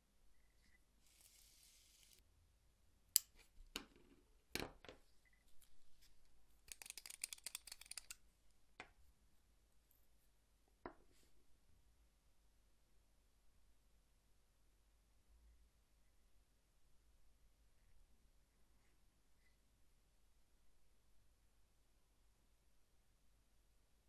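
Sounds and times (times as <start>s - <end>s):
leatherworking tools clicking: 6.7s - 8.2s
threaded cap twisting fine clicks: 6.7s - 8.2s.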